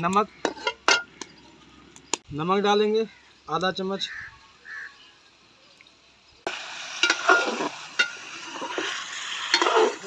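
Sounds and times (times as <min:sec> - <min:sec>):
chicken sizzling in a pot: 0:06.4 - 0:10.0.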